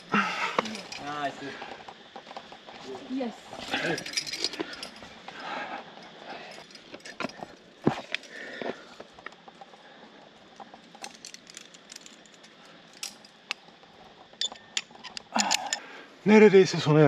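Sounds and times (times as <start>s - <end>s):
metal carabiners clinking: 0.0s - 1.5s, 3.5s - 8.4s, 10.5s - 15.9s.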